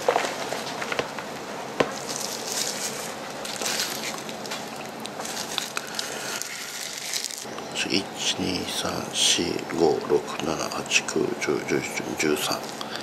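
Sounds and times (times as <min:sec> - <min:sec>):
plastic gloves crinkling: 0:01.8 - 0:07.5.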